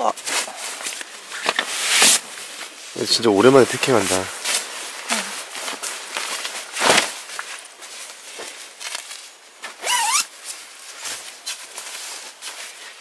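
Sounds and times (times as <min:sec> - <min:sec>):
footsteps: 0:00.2 - 0:09.8
clothing rustling: 0:00.2 - 0:13.0
short rising squeak: 0:09.8 - 0:10.3.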